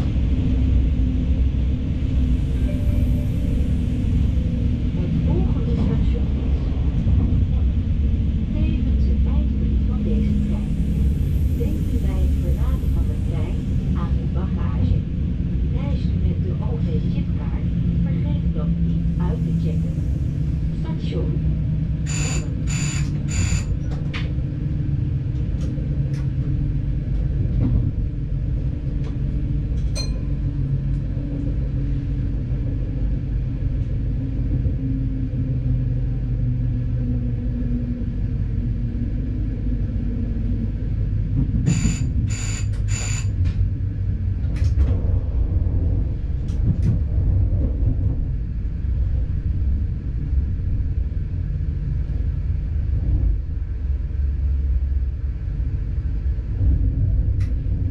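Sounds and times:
diesel train rumbling: 0:00.0 - 0:57.9
short high beeps: 0:02.6 - 0:03.7, 0:22.1 - 0:23.7, 0:41.7 - 0:43.3.

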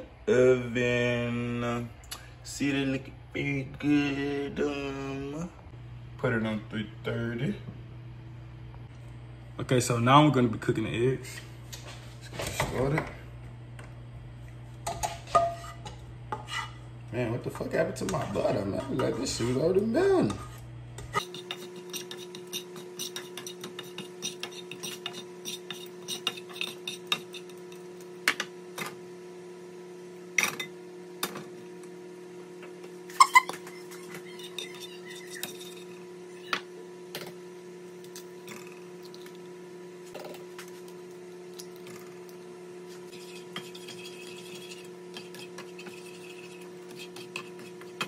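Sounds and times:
low hum: 0:00.0 - 0:09.8
spatula scraping a frying pan: 0:15.0 - 0:16.8, 0:18.0 - 0:20.6, 0:21.2 - 0:27.8, 0:33.2 - 0:36.1, 0:43.0 - 0:48.0.

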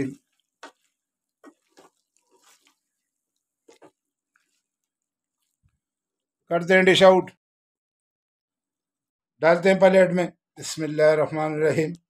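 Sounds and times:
spatula scraping in thick gravy: 0:00.0 - 0:03.0.

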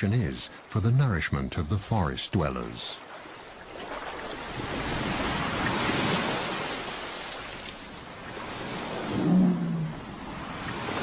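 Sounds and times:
surf washing against rocks: 0:02.3 - 0:11.0.

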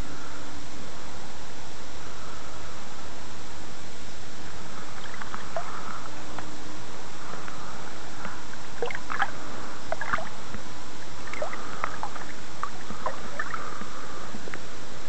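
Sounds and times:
steady hiss: 0:00.0 - 0:15.0
water splashing and trickling: 0:05.0 - 0:05.8, 0:08.8 - 0:10.4, 0:11.0 - 0:13.8.

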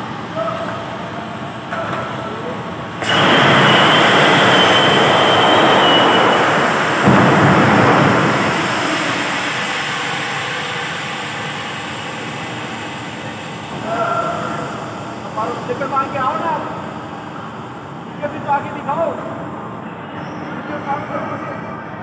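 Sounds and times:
high whistle: 0:03.0 - 0:07.3
rush of gas and air: 0:03.0 - 0:13.7.

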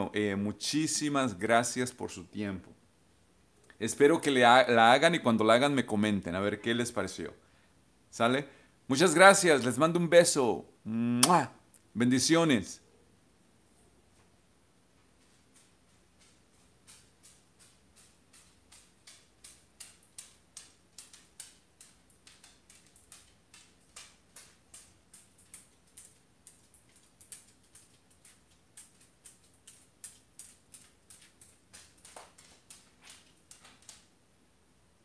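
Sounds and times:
faint regular ticking: 0:15.2 - 0:34.1.

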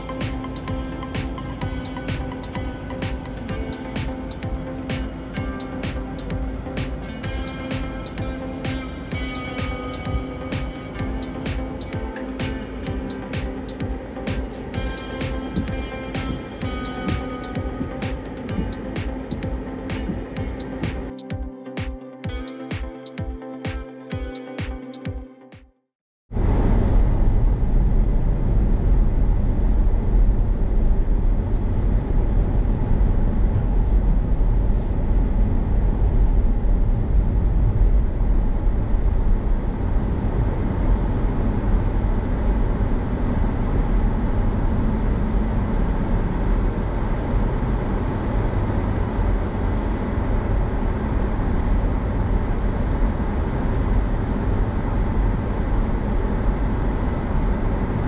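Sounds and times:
road and tyre rumble in car: 0:26.3 - 0:58.0.

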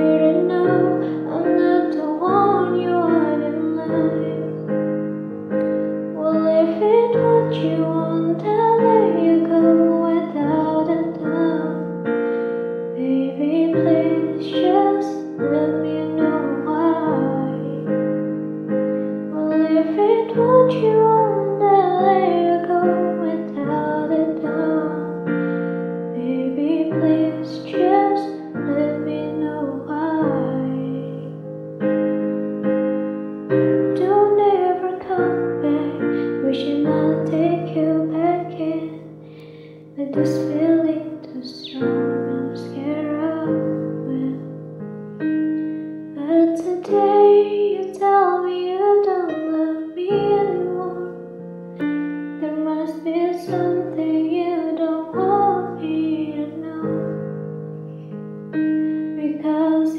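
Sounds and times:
woman singing a pop ballad: 0:00.0 - 0:04.8, 0:06.1 - 0:18.0, 0:19.3 - 0:31.4, 0:33.9 - 0:39.2, 0:39.9 - 0:44.6, 0:46.1 - 0:57.2, 0:59.0 - 0:59.9
piano chords: 0:00.0 - 0:59.9.

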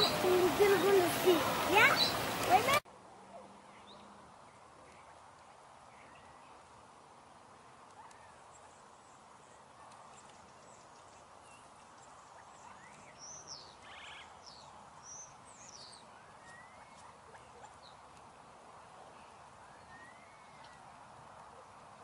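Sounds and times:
faint outdoor hiss: 0:00.0 - 0:22.0
high bird chirps: 0:01.8 - 0:02.3.

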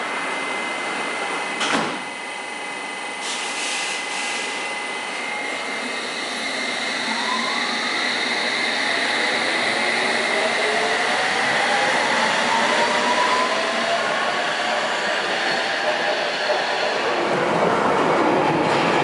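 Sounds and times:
train motor whine rising: 0:04.2 - 0:16.6.

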